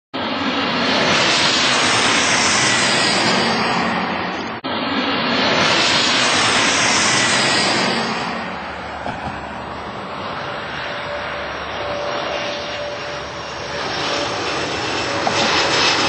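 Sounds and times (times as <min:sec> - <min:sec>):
jet engine roar: 0:00.2 - 0:16.0.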